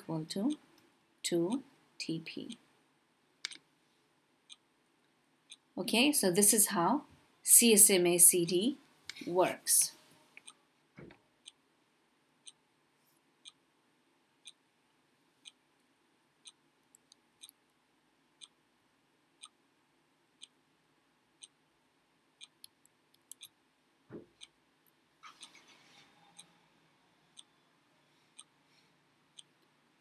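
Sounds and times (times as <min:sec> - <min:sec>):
sharp ticking: 0:22.4 - 0:23.6.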